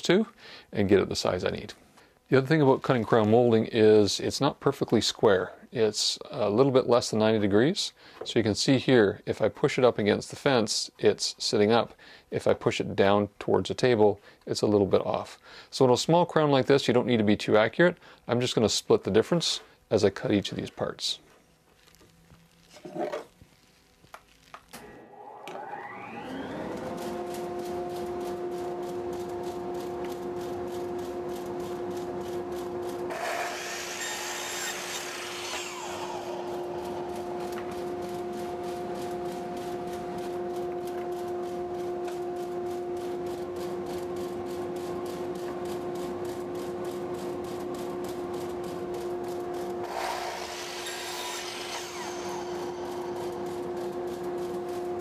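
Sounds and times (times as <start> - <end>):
dust collector humming: 24.8 - 55.0
miter saw cutting wood: 24.8 - 55.0.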